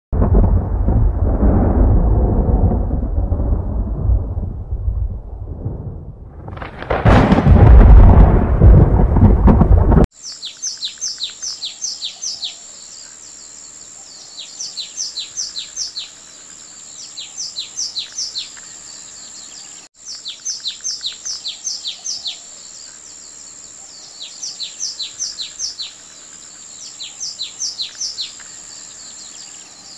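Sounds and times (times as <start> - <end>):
thunderclap and rumble: 0.1 - 10.1.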